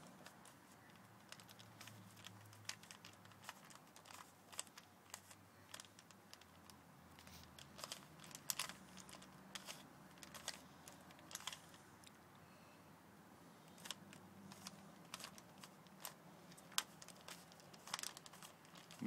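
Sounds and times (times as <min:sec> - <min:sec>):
puzzle cube clicking: 0:07.5 - 0:12.2.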